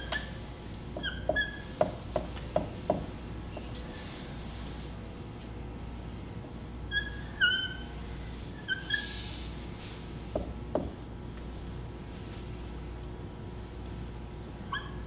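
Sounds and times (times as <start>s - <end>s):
marker squeaking on whiteboard: 1.0s - 1.8s.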